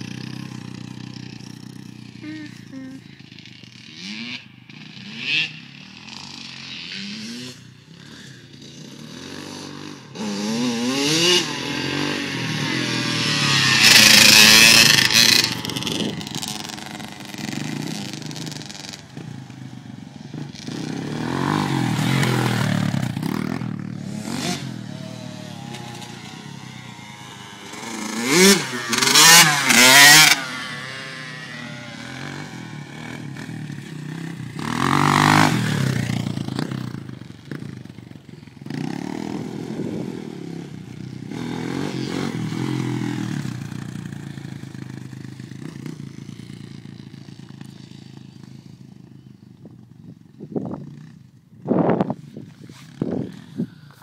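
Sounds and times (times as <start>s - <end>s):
dirt bike engines revving: 0.0s - 54.0s.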